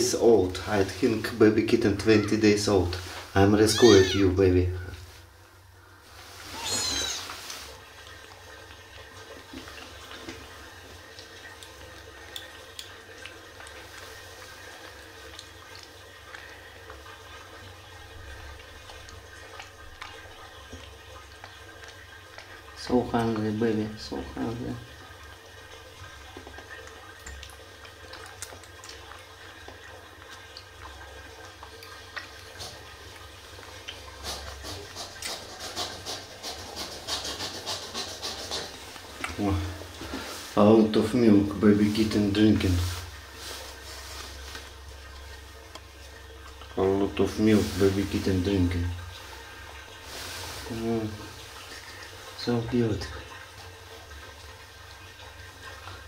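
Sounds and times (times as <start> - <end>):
kitten suckling wet clicks: 6.6 - 23.5, 25.0 - 39.4.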